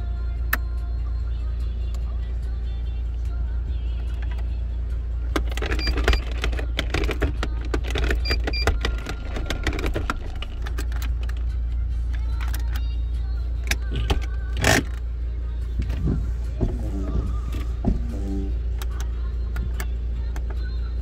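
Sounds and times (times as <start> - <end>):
gear selector lever clicking: 5.3 - 13.0, 13.6 - 15.1, 15.8 - 20.7.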